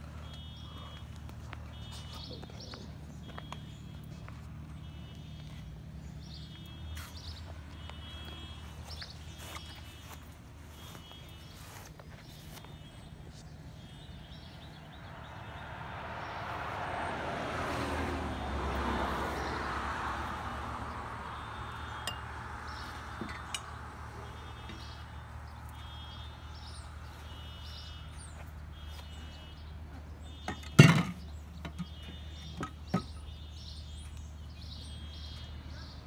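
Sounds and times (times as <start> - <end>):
vehicle driving past: 14.9 - 24.4.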